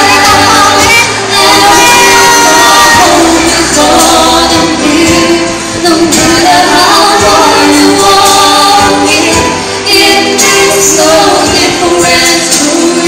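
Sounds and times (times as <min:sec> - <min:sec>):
man and woman singing duet: 0:00.0 - 0:13.0.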